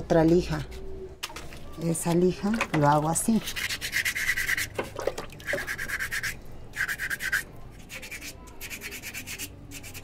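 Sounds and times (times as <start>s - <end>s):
sandpaper scratching stone: 3.4s - 4.8s, 5.4s - 10.0s.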